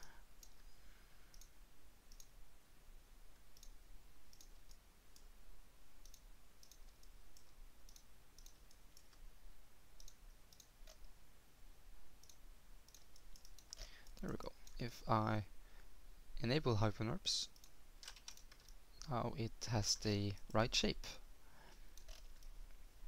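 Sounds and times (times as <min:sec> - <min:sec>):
low hum and hiss: 0:00.0 - 0:23.0
computer mouse clicks: 0:01.3 - 0:01.5, 0:02.1 - 0:02.3, 0:03.4 - 0:05.3, 0:06.0 - 0:09.2, 0:10.0 - 0:11.2, 0:12.2 - 0:14.8, 0:17.5 - 0:19.1, 0:21.9 - 0:22.6.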